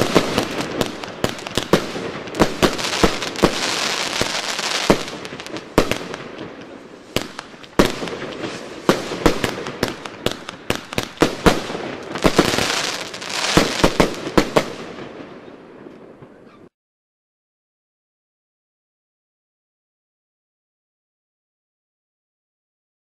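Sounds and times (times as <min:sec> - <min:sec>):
firework crackling: 0:00.0 - 0:15.3
firework bangs: 0:00.0 - 0:16.4.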